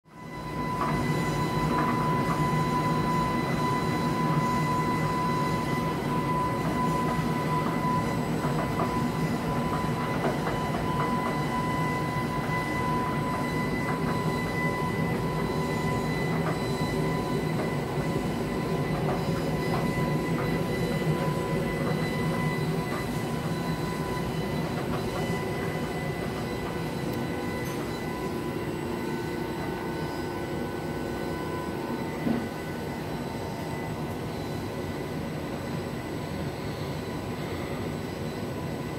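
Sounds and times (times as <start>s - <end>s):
steady high whine: 0.1s - 38.9s.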